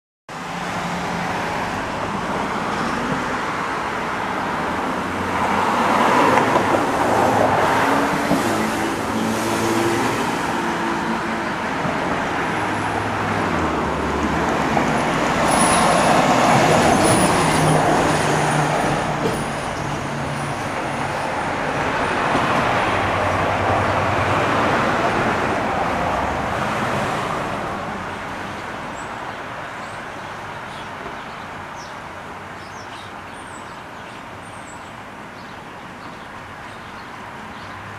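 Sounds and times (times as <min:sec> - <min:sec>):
road traffic passing: 0:00.3 - 0:37.9
fire truck driving by: 0:07.6 - 0:25.7.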